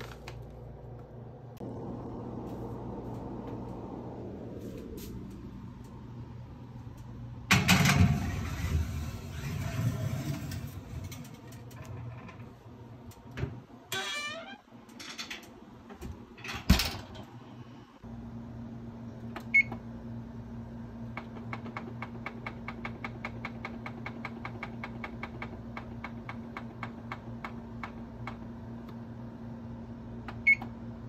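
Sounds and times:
electric hum: 0.0 - 15.9.

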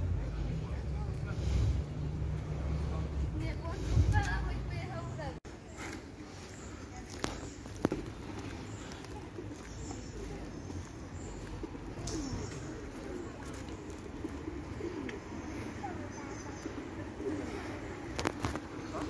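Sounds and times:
pigeons cooing: 7.1 - 19.0.

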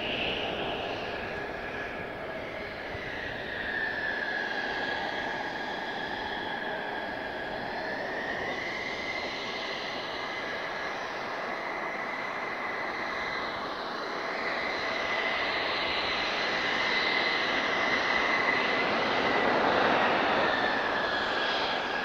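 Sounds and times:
jet engine whine: 0.0 - 22.0.

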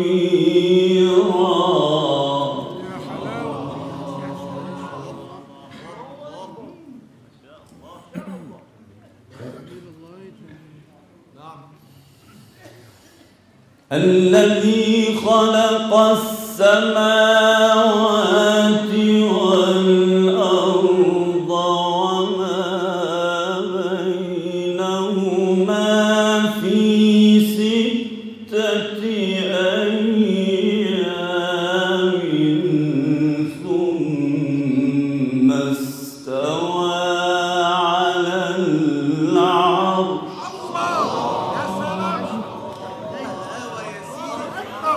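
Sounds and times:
man chanting melodic recitation: 13.9 - 44.9.

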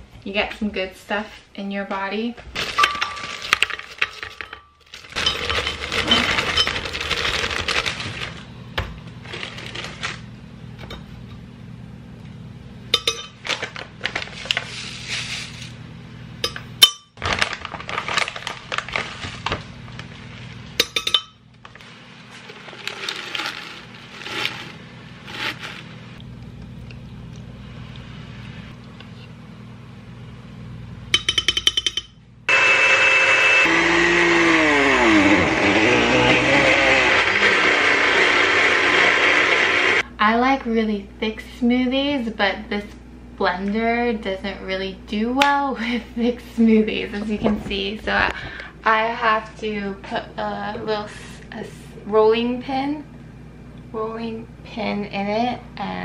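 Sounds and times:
plastic bags rustling: 2.5 - 8.5, 9.1 - 10.3, 13.4 - 15.7, 17.2 - 20.5, 22.2 - 25.9
frozen fruit clinking into glass jar: 2.6 - 8.3
blender running loudly: 32.5 - 40.0.

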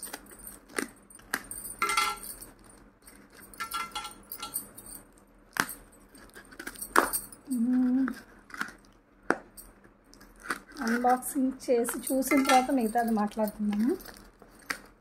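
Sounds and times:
bangles clinking: 0.0 - 8.8, 9.4 - 15.0.

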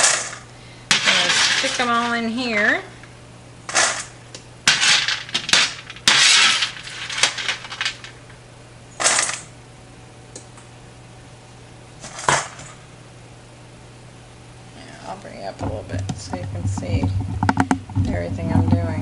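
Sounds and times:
chickpeas clattering in pan: 0.0 - 2.4, 4.7 - 8.2
metal spoon scraping baking sheet: 0.9 - 2.3, 4.7 - 7.9.

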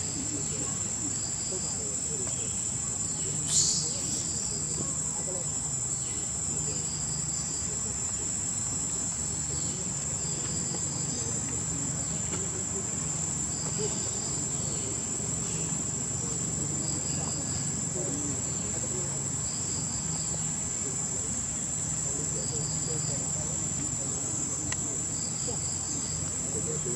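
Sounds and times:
high-pitched insect drone: 0.0 - 12.4.

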